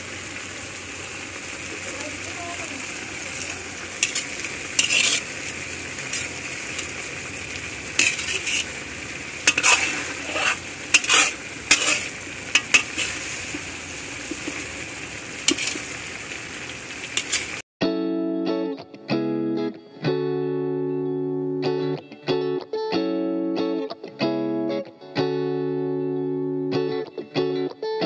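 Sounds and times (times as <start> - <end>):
coconut sizzling in a wok: 0.0 - 17.6
metal spatula scraping a wok: 3.2 - 7.0, 7.9 - 14.6, 15.4 - 16.0, 17.1 - 17.6.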